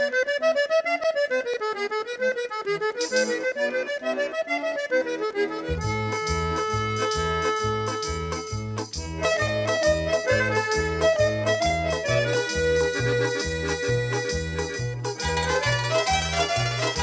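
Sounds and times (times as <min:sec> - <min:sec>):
wavering melody line: 0:15.2 - 0:17.0.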